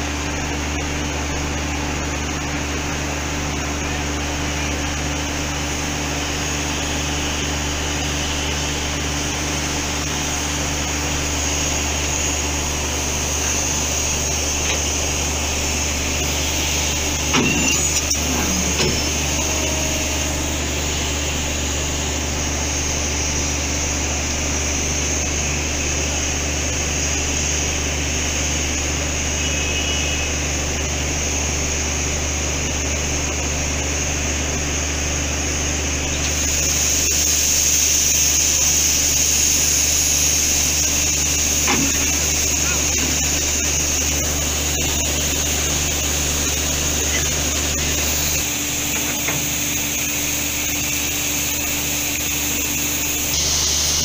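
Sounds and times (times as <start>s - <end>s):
steam hissing: 0.0s - 54.0s
steam locomotive low hum: 0.0s - 54.0s.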